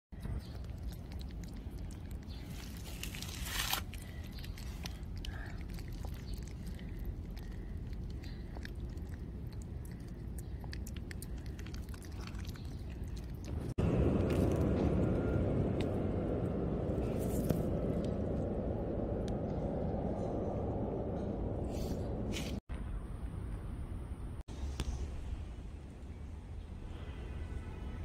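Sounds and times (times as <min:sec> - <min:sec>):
kitten chewing wet food: 0:00.2 - 0:02.9, 0:03.9 - 0:14.6.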